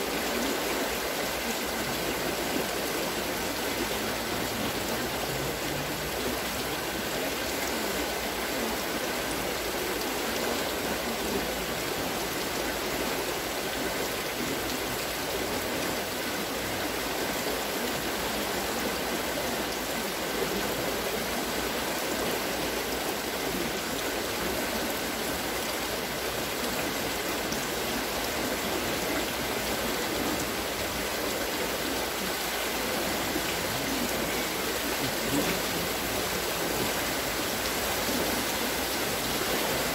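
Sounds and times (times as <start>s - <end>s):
water wheel splashing: 24.9s - 39.9s.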